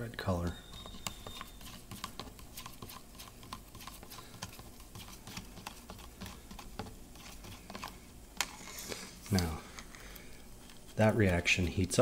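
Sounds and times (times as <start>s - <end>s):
plastic spoon scraping plastic cup: 0.5s - 10.0s.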